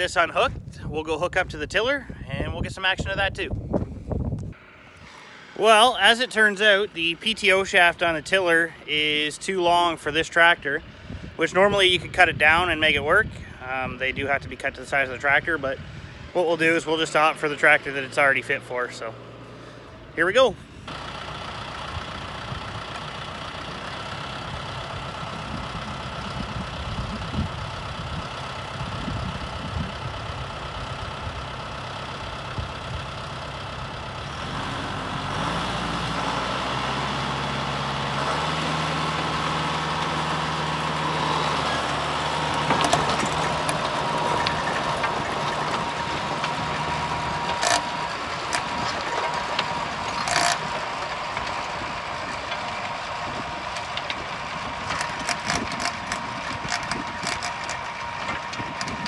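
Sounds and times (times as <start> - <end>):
tractor diesel engine running: 0.0 - 59.0
steady whine: 40.4 - 59.0
sharp clicks: 47.4 - 51.6, 54.9 - 59.0.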